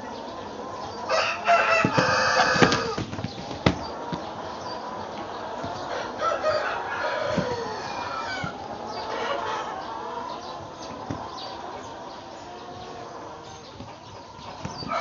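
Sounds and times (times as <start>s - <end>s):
chickens clucking: 0.0s - 15.0s
rooster crowing: 1.1s - 3.1s, 5.8s - 9.8s, 14.8s - 15.0s
dull thumps: 1.8s - 4.3s.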